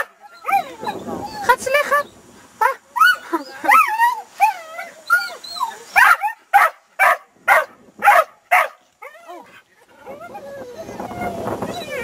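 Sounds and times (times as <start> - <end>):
dog whining and yipping: 0.0 - 1.6, 3.0 - 6.3, 9.0 - 12.0
dog barking: 6.0 - 8.8.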